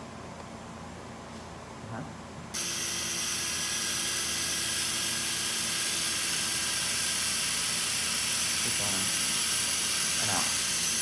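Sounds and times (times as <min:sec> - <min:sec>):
surgical drill whirring: 0:02.6 - 0:11.0.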